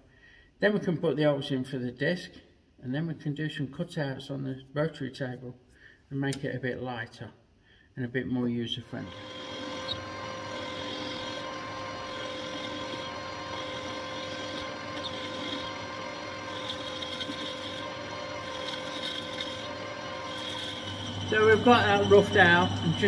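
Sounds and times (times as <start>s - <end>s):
metal lathe running: 9.0s - 23.0s.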